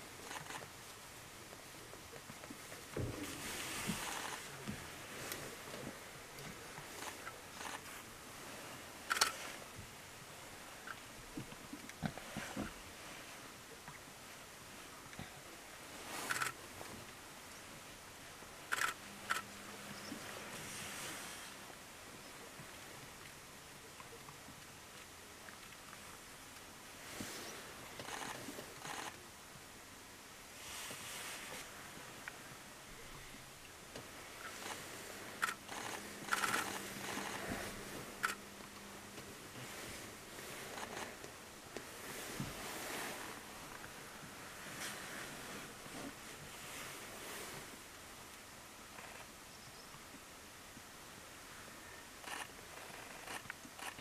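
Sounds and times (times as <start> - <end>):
wind hiss: 0.0 - 23.8, 24.5 - 54.0
wings rustling against feathers: 34.4 - 41.2.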